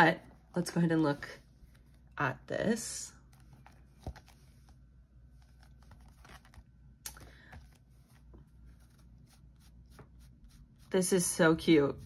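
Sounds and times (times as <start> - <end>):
cardboard handling noise: 3.3 - 10.2.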